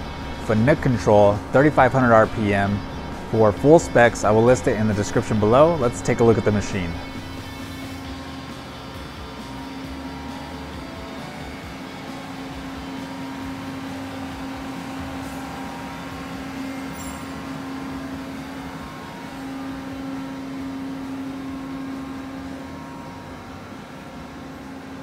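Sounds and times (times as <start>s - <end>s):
idling lathe humming: 0.0s - 25.0s.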